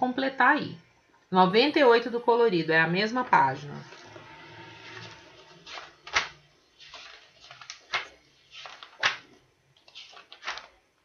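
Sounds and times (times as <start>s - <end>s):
book rustling and knocking: 5.1s - 10.8s.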